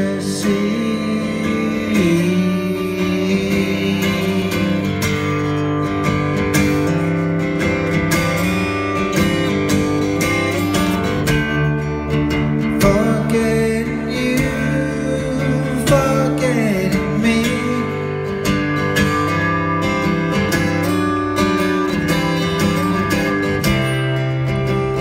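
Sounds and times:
acoustic guitar strummed: 0.0 - 25.0.

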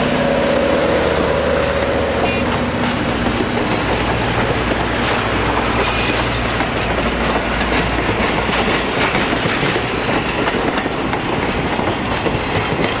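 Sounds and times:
train wheels clicking over rail joints: 1.5 - 13.0
high wheel squeal: 5.8 - 6.6.

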